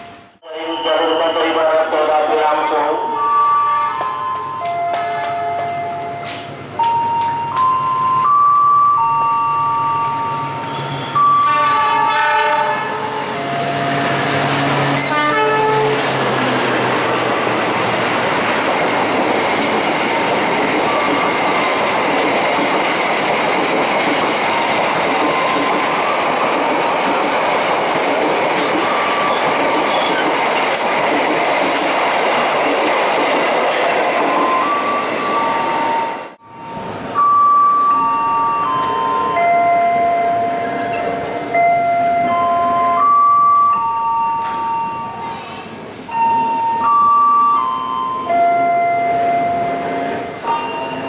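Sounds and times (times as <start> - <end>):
locomotive horn blasts: 3.2 - 4.1, 11.1 - 13.3, 15.0 - 16.1
train wheels rumbling and clattering: 4.0 - 8.3, 10.4 - 37.1, 44.4 - 46.6.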